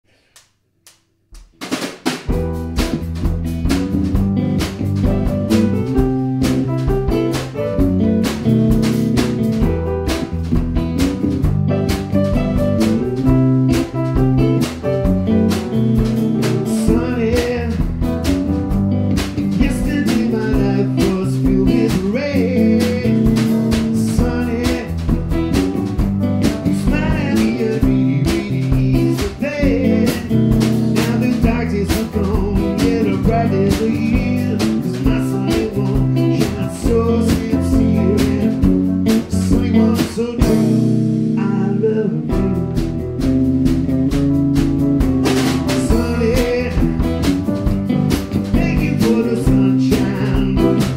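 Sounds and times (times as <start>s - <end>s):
live band playing: 1.8s - 50.9s
electric guitar lead lines: 2.3s - 50.9s.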